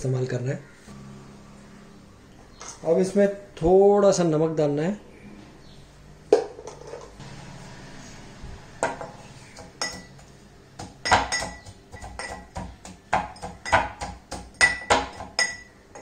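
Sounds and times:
brass pestle pounding in mortar: 10.8 - 15.7.

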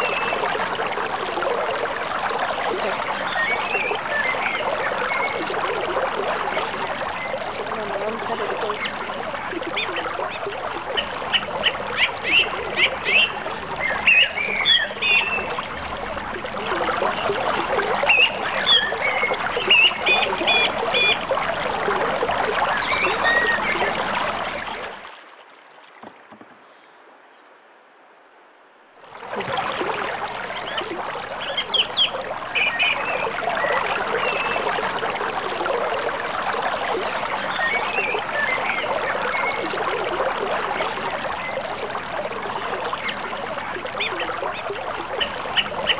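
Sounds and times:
creek water running: 0.0 - 27.8, 28.9 - 45.9
birds chirping: 2.8 - 5.4, 6.5 - 15.8, 18.0 - 21.6, 22.6 - 24.9, 30.5 - 34.7.

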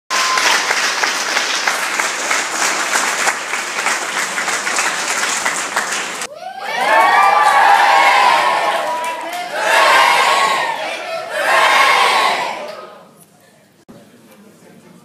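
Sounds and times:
audience applauding: 0.1 - 11.0
crowd cheering: 0.1 - 13.0.

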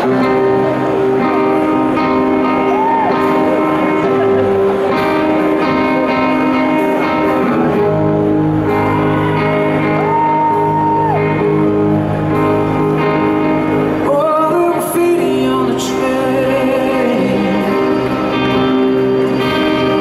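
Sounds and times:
live rock band with strings: 0.0 - 20.0
lead vocal singing: 14.0 - 18.7.

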